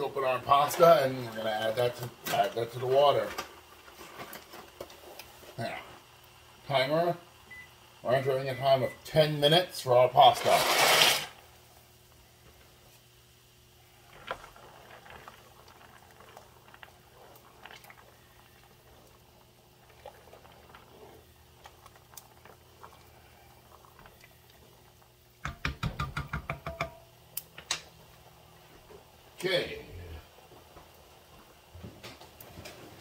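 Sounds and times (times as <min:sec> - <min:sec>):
water boiling in a pot: 0:00.0 - 0:33.0
utensil clicking against pot: 0:25.4 - 0:27.9.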